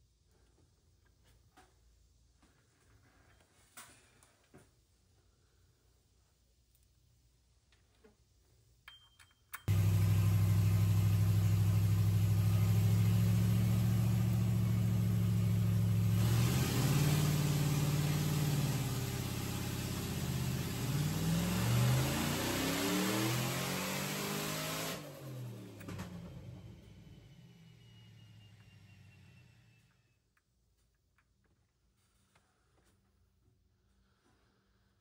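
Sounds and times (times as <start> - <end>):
engine running from inside car: 9.7 - 29.8.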